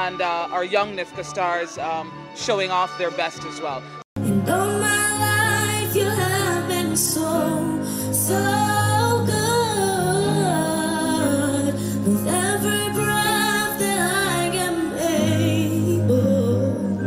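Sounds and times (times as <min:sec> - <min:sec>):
woman singing into a microphone: 0:04.2 - 0:17.0.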